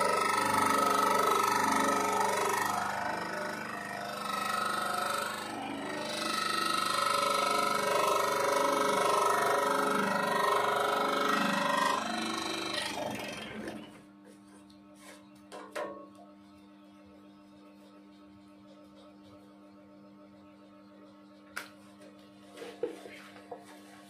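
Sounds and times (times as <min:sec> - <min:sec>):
scroll saw cutting: 0:00.0 - 0:13.8.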